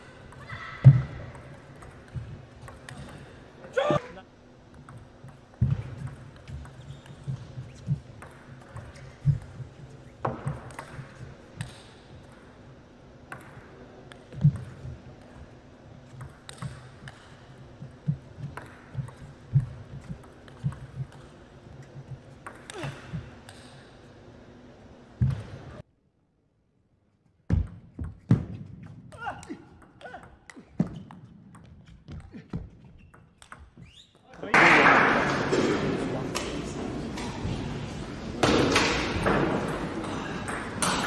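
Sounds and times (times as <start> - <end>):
ball bouncing on table: 4.8 - 9.6
table tennis ball hits: 8.2 - 9.6, 13.3 - 14.8, 18.4 - 21.3, 22.4 - 23.8, 38.4 - 41.0.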